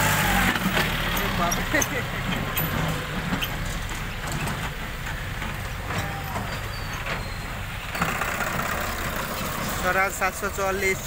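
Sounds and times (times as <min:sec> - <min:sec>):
diesel tractor engine running: 0:00.0 - 0:11.0.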